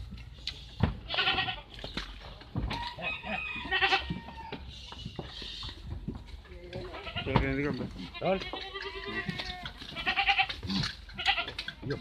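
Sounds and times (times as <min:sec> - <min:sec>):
goats bleating: 0:01.0 - 0:01.7, 0:03.0 - 0:04.6, 0:06.4 - 0:12.0.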